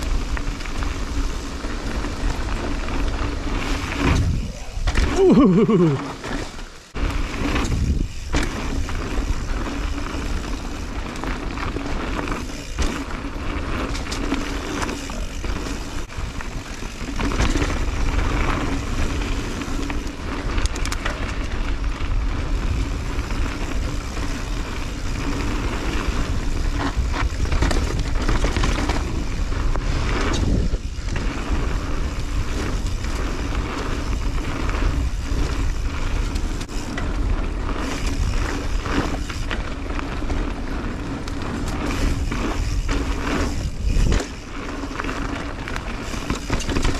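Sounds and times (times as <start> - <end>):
bike clattering over bumps: 0.0 - 46.9
bike tyres on dirt: 0.0 - 46.9
wind rushing over microphone: 1.1 - 5.6, 6.9 - 10.6, 21.4 - 39.5.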